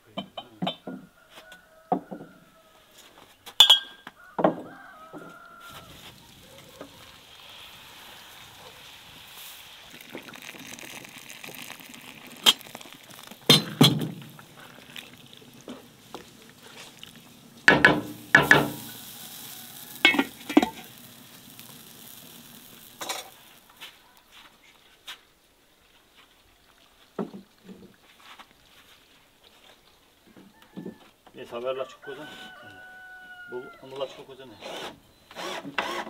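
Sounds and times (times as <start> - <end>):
stew sizzling in a pan: 5.0 - 24.4
water pouring: 5.6 - 23.8, 25.8 - 29.2
wooden spatula knocking pan: 17.7 - 18.8.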